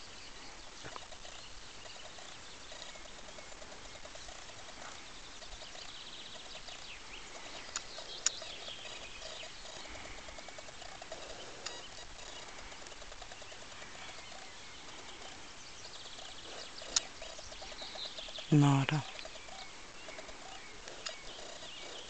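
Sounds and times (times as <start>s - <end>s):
low outdoor hiss: 0.0s - 22.0s
small birds singing and trilling: 0.0s - 22.0s
sharp clicks: 16.9s - 17.1s, 20.8s - 21.2s.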